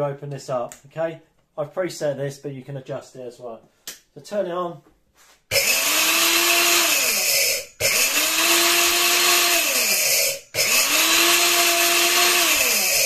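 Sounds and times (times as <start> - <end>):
grain mill motor whine: 5.5 - 13.0.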